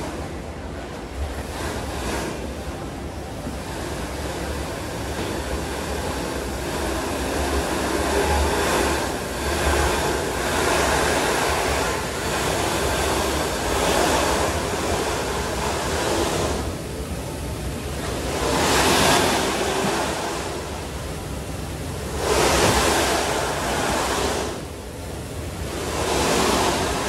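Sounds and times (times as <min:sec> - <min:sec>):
moving belt low rumble: 0:00.0 - 0:27.0
snowboard sliding on carpet: 0:25.7 - 0:27.0.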